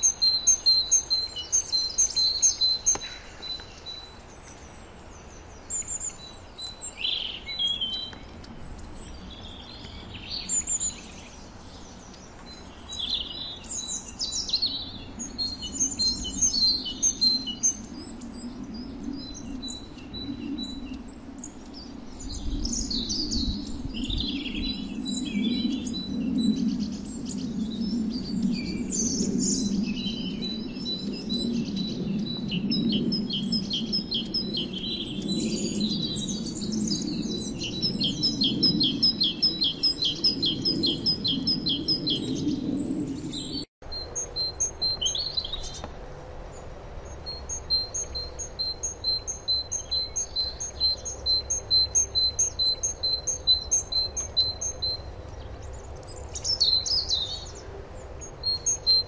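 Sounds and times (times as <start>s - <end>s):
songbirds chirping: 0.0s - 59.0s.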